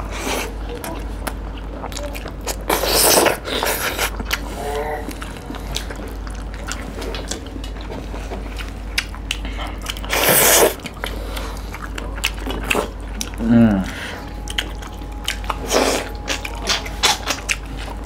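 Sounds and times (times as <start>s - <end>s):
wet chewing and lip smacking: 0.4s - 18.0s.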